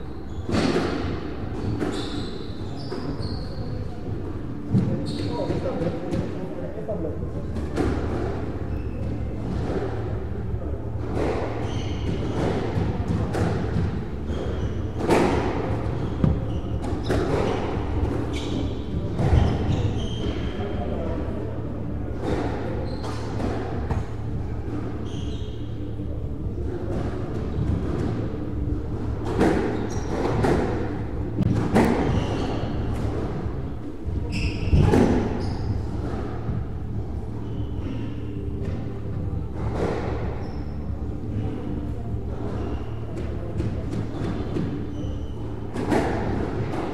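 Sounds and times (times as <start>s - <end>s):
low hall hum: 0.0s - 46.9s
shoes squeaking on wooden floor: 0.1s - 4.0s, 4.6s - 6.2s, 11.2s - 21.0s, 22.2s - 26.0s, 29.4s - 33.2s, 34.2s - 36.5s, 40.1s - 41.1s, 42.5s - 46.9s
squash ball hitting rackets and walls: 0.4s - 3.2s, 7.5s - 21.0s, 22.1s - 25.8s, 26.6s - 46.9s.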